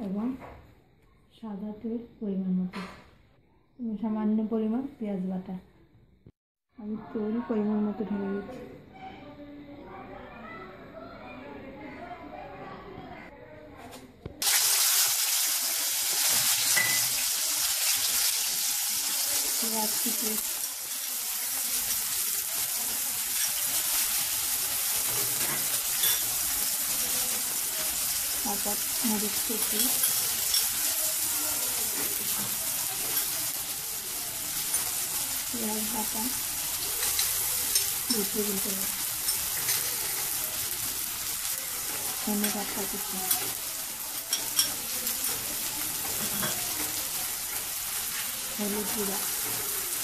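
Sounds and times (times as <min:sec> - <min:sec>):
onions sizzling in oil: 0:14.4 - 0:50.0.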